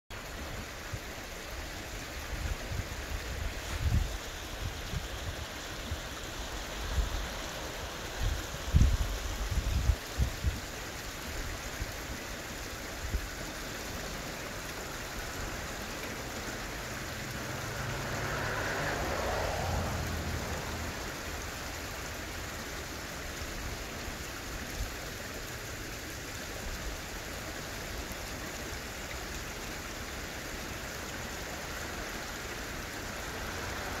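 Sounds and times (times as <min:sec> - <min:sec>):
water: 0:00.1 - 0:34.0
wind: 0:00.1 - 0:34.0.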